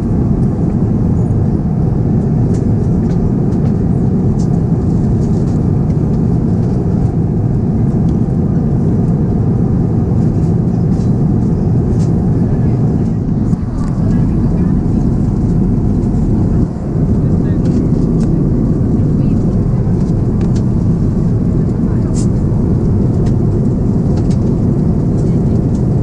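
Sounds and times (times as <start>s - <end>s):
airliner cabin noise: 0.0s - 26.0s.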